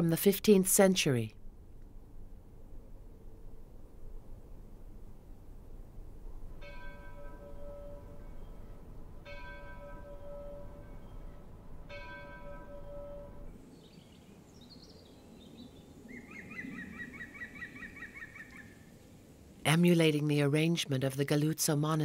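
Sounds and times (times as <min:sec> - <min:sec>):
church bell tolling: 0:06.6 - 0:13.6.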